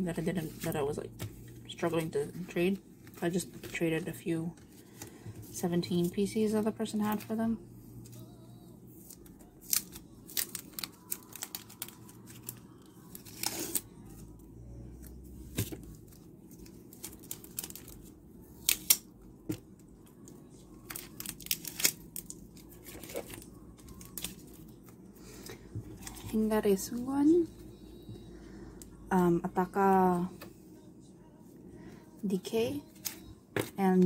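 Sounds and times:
crinkly plastic crackling: 9.0 - 14.2, 15.5 - 19.1, 20.1 - 27.4
tape peeling off plastic: 20.9 - 24.6.

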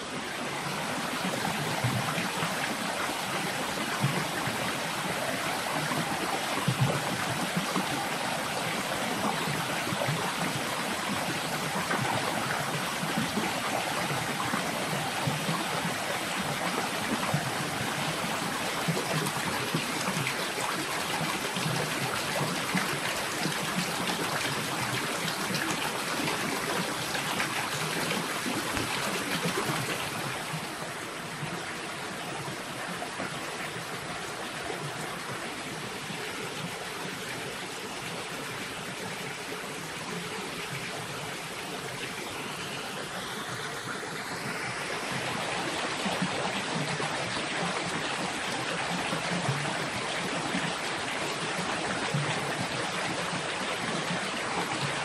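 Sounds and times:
waterfall splashing into pool: 1.0 - 30.6.

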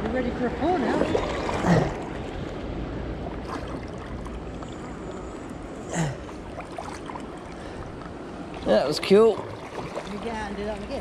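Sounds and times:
turbulent water rushing: 0.3 - 2.6.

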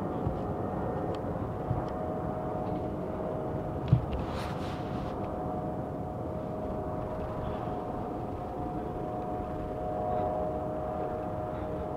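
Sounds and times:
helicopter drone with whine: 0.0 - 11.9.

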